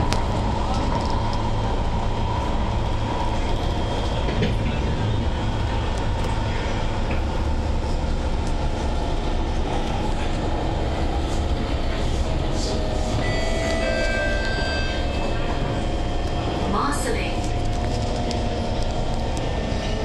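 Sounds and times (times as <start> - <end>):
low rumble of train wheels: 0.0 - 20.0
faint steady tones: 12.6 - 19.4.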